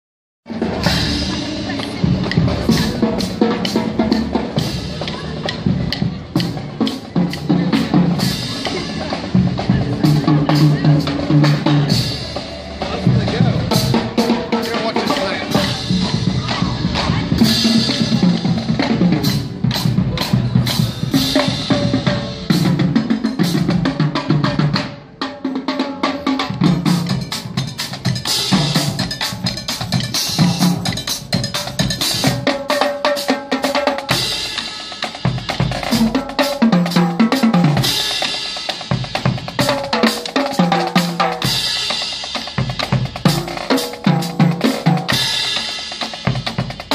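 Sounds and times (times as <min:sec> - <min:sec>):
bass drum beats: 0:00.5 - 0:24.9.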